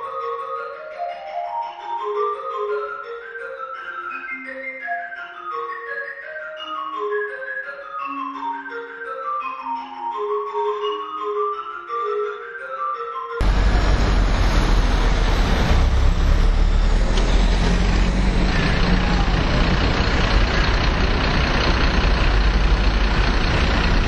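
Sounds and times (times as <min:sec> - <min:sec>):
background music with mallet notes: 0:00.0 - 0:13.5
road traffic rumble: 0:13.4 - 0:24.0.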